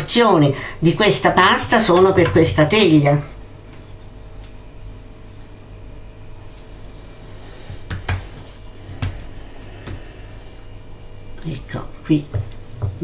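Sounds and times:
low room hum: 0.0 - 13.0
hands pressing dough on worktop: 7.7 - 10.1.

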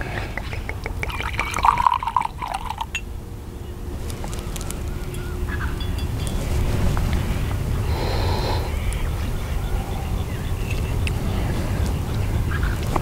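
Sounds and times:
liquid pouring into a glass: 0.0 - 3.0
wind rumble on microphone: 0.0 - 13.0.

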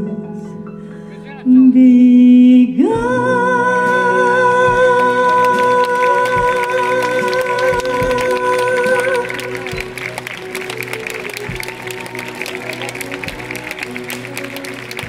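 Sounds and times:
woman singing high note with vibrato: 1.6 - 10.2
full orchestra: 3.0 - 15.0.

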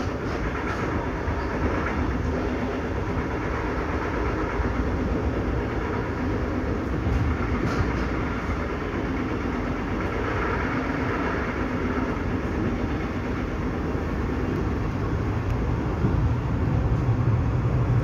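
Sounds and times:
train rumbling and rolling: 0.0 - 18.0.

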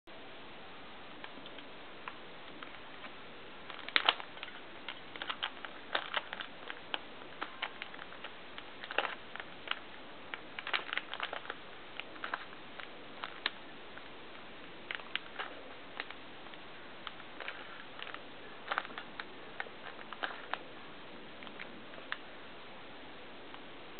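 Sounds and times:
puzzle cube clicking: 1.2 - 14.1, 14.9 - 20.6.

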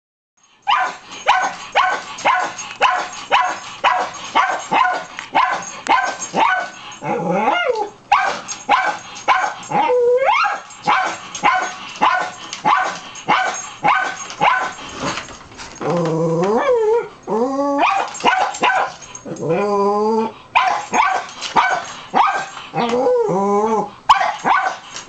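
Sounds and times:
small dog barking: 0.7 - 6.7, 8.1 - 9.6, 10.3 - 14.8, 17.8 - 19.0, 20.6 - 22.5, 24.1 - 24.8
dog whining: 0.7 - 15.2, 15.8 - 24.9.

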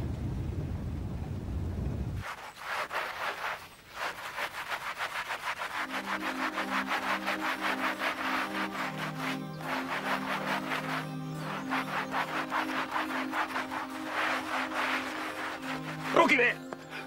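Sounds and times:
brush scrubbing wet blanket: 2.2 - 17.0
soft sustained music notes: 5.8 - 17.0.

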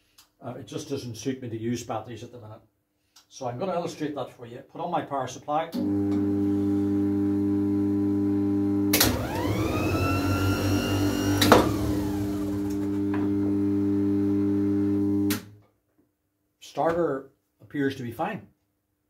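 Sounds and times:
power supply humming: 5.8 - 15.4
starter motor whining: 8.9 - 15.4.

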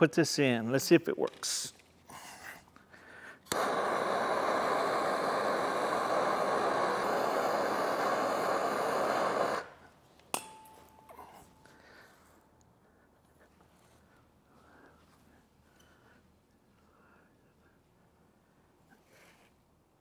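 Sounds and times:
gas torch ignition click: 3.4 - 9.7
gas torch flame hissing: 3.4 - 9.9.

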